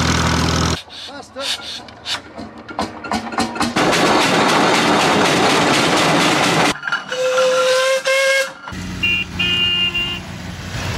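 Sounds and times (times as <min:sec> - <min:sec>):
steam whistle blasts: 0:07.1 - 0:10.2.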